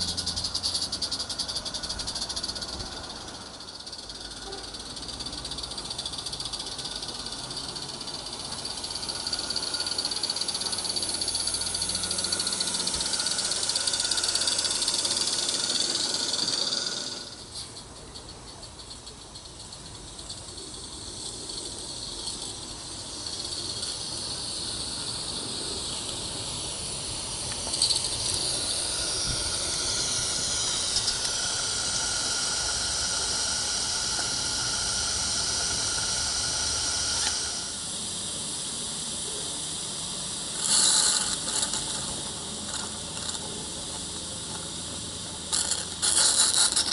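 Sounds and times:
steam hissing: 0:00.0 - 0:46.9
track rattling: 0:21.6 - 0:37.8.

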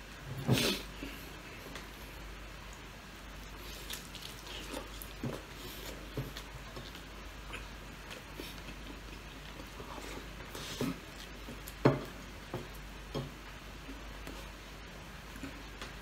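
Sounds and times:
chewing and lip smacks: 0:03.4 - 0:11.8.

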